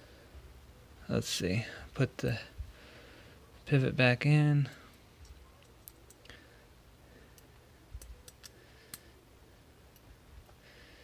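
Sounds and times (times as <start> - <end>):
small metal parts clicking: 5.2 - 6.3, 7.3 - 9.0.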